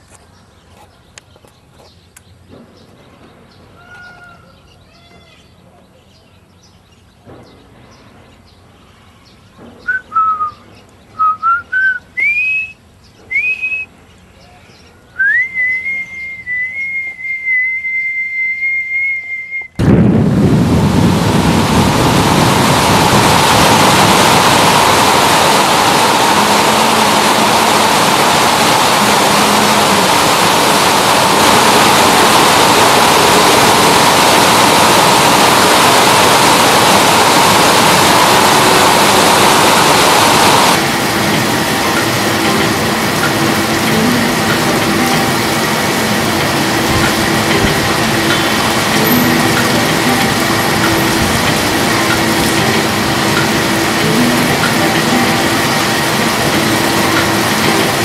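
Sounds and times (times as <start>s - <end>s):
person whistling: 9.9s - 10.6s, 11.2s - 13.9s, 15.2s - 19.8s
loud steady rushing noise: 19.7s - 58.0s.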